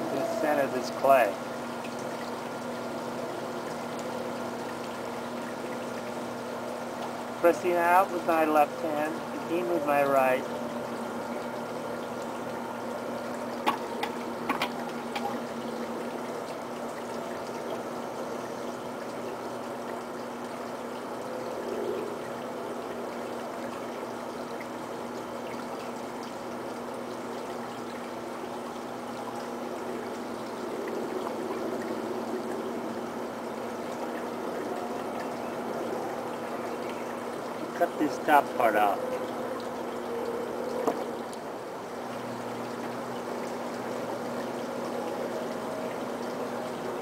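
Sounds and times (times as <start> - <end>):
potter's wheel humming: 0.0 - 47.0
rushing watery noise: 0.0 - 47.0.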